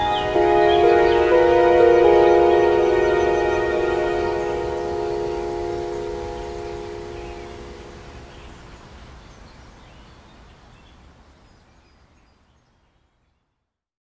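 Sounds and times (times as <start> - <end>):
held music chord: 0.0 - 8.7.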